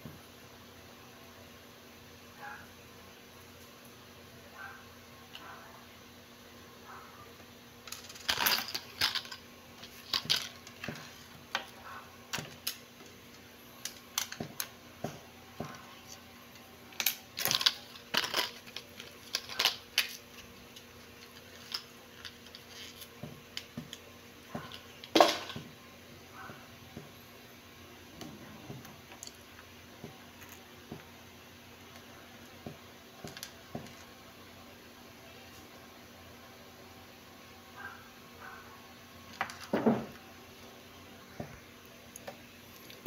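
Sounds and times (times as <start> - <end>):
small hard objects clinking: 7.9 - 10.7, 17.0 - 23.1.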